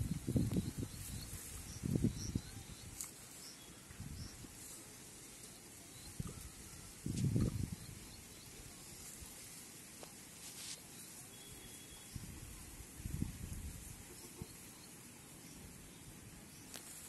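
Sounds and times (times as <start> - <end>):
faint bird chirps: 0.0 - 8.8, 10.9 - 12.4.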